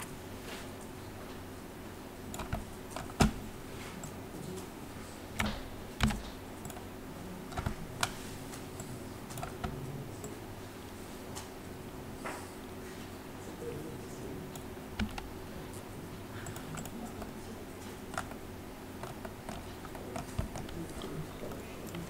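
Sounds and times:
faint steady hum: 0.0s - 22.0s
keyboard and mouse clicks: 2.3s - 3.4s, 5.4s - 6.9s, 7.5s - 9.9s, 14.6s - 15.3s, 16.4s - 17.3s, 18.1s - 18.4s, 19.0s - 22.0s.

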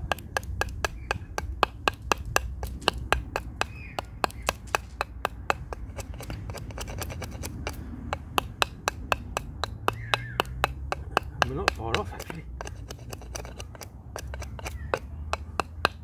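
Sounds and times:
knife chopping hard wood: 0.0s - 16.0s.

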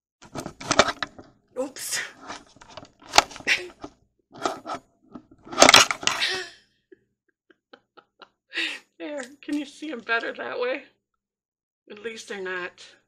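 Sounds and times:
camera handling scrapes and rustles: 0.2s - 1.3s, 2.1s - 6.2s.

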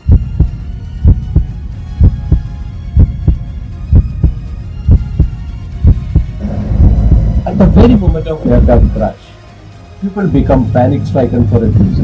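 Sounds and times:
heartbeat thumps: 0.0s - 9.0s
faint held drone: 0.0s - 9.2s.

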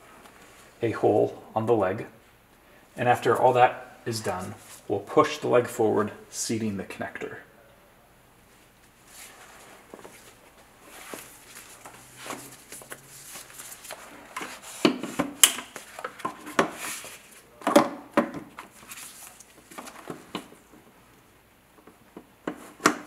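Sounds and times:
rustling of gloved hands: 8.6s - 17.5s, 18.6s - 20.8s.

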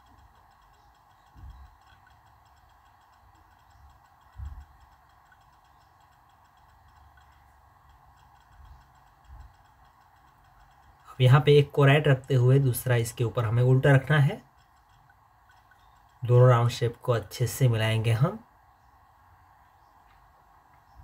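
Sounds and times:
soft low thumps: 0.0s - 11.0s
faint steady ticking: 0.0s - 21.0s.

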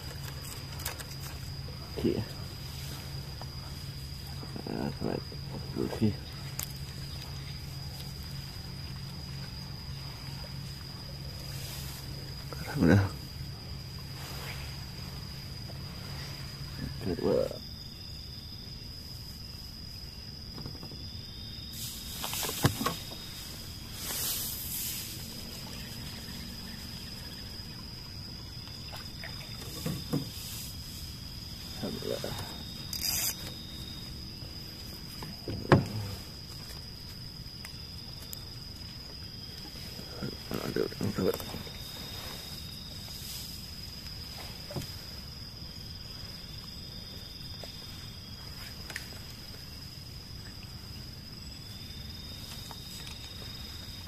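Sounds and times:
night insects droning: 0.0s - 54.0s
faint ticks: 6.4s - 8.2s.

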